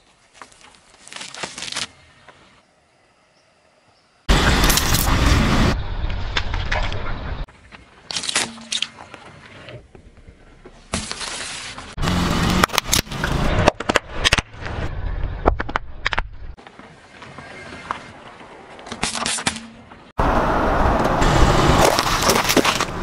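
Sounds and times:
sharp cracks and pops: 0.4s - 2.0s, 7.7s - 9.3s, 12.0s - 16.6s
tyre crushing objects on asphalt: 21.6s - 23.0s.

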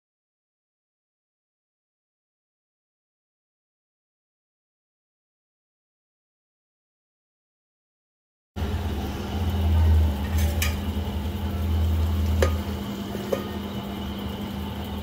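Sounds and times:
low steady rumble of cooking: 8.6s - 15.0s
steel plate set on pan: 10.2s - 11.0s, 12.2s - 13.7s.

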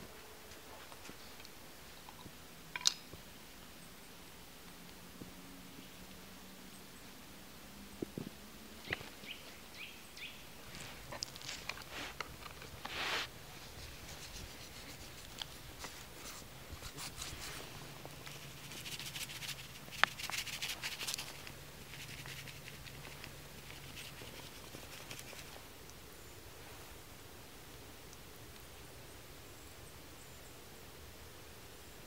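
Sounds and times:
hands rubbing seasoning on fish: 10.8s - 25.6s.

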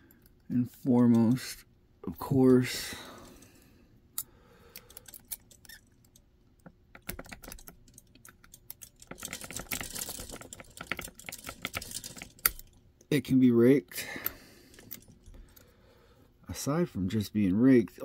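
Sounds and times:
lock pick clicking and scraping: 4.2s - 12.8s, 14.7s - 15.6s.

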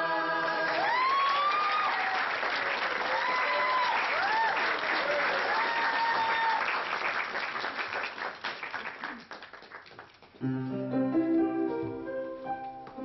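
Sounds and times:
audience clapping: 0.2s - 10.4s.

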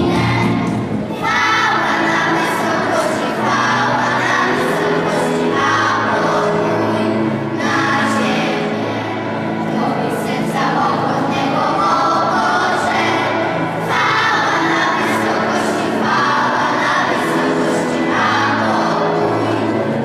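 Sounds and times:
children's choir singing a carol: 0.0s - 20.0s.

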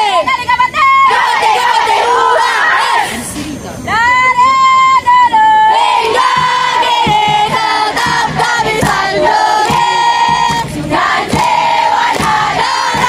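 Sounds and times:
girls chanting a cheer: 0.0s - 3.2s, 5.6s - 13.0s
sharp beats: 5.9s - 13.0s.

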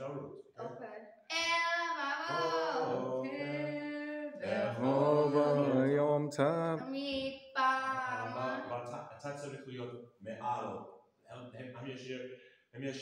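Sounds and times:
young man chanting a prayer: 2.3s - 6.8s, 7.9s - 10.8s.

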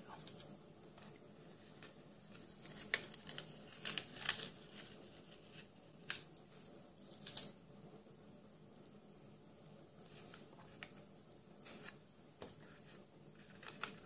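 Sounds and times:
masking tape peeling off paper: 1.8s - 7.6s
tape ripping: 2.3s - 6.3s.

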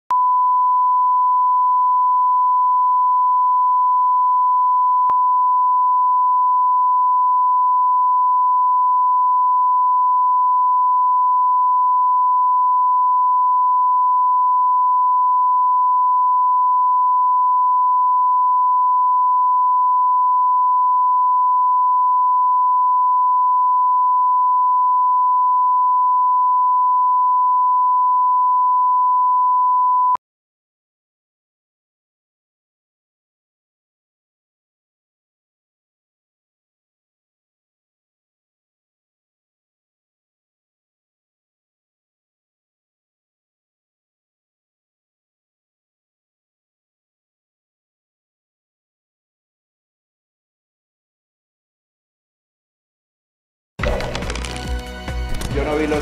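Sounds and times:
steady reference tone beep: 0.1s - 30.2s.

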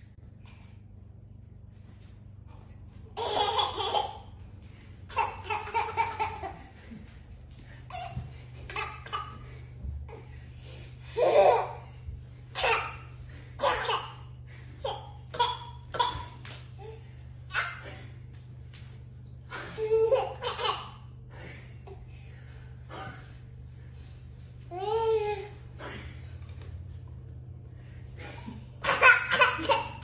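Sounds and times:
toddler laughing: 3.2s - 4.3s, 5.1s - 6.7s.

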